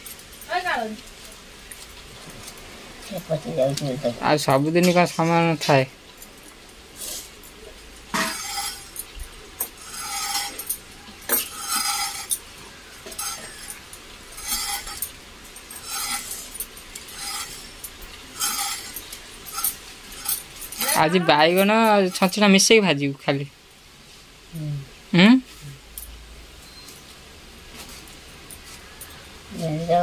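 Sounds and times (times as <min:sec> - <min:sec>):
glass bangles clinking: 0:08.2 - 0:12.5, 0:13.1 - 0:22.5.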